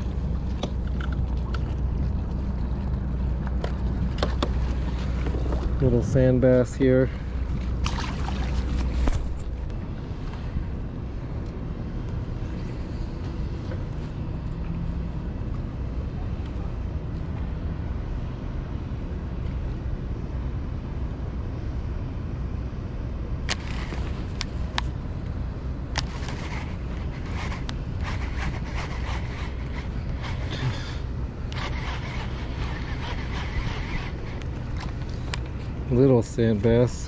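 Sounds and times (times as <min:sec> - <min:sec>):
wind rumble on microphone: 0:00.0 - 0:37.0
fishing reel ticking and rattling: 0:31.5 - 0:34.9.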